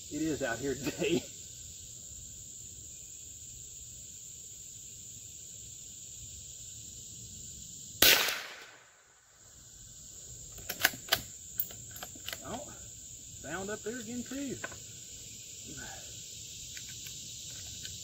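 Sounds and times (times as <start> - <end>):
insects droning: 0.0 - 18.0
rifle shot: 8.0 - 9.1.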